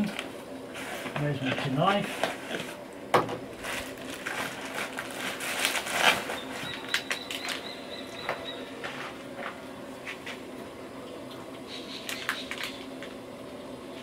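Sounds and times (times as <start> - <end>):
packets and gear rustling: 3.6 - 7.6.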